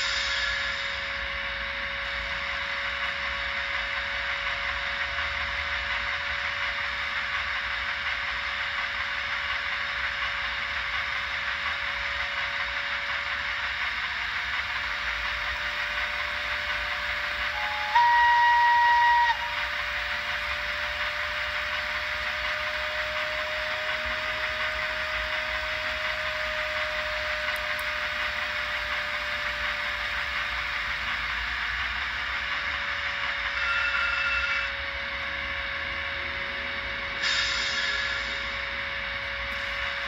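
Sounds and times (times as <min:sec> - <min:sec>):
model locomotive running hiss: 0:00.0 - 0:40.0
motor whine rising in pitch: 0:00.0 - 0:40.0
model train horn: 0:15.0 - 0:29.4, 0:32.4 - 0:35.3.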